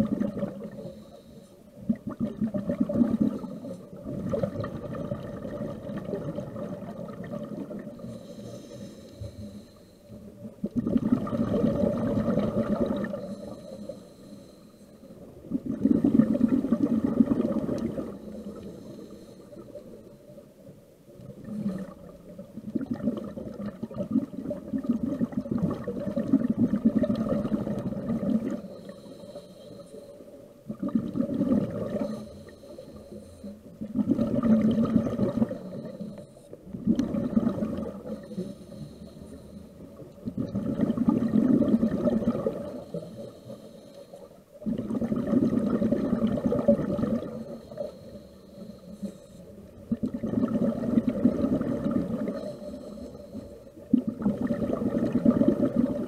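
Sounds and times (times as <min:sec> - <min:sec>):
exhaled bubbles rushing: 0:00.0 - 0:00.8, 0:01.8 - 0:08.1, 0:10.6 - 0:13.6, 0:15.4 - 0:18.6, 0:21.3 - 0:28.7, 0:30.6 - 0:32.2, 0:33.8 - 0:36.0, 0:36.7 - 0:38.3, 0:40.0 - 0:42.8, 0:44.6 - 0:47.5, 0:49.8 - 0:52.6, 0:53.8 - 0:56.0
hissing regulator inhale: 0:00.6 - 0:01.8, 0:03.2 - 0:04.0, 0:07.9 - 0:10.5, 0:13.0 - 0:15.4, 0:17.9 - 0:20.4, 0:28.4 - 0:30.4, 0:31.8 - 0:33.8, 0:35.4 - 0:36.8, 0:37.8 - 0:40.1, 0:42.5 - 0:44.6, 0:47.0 - 0:49.8, 0:52.1 - 0:53.9.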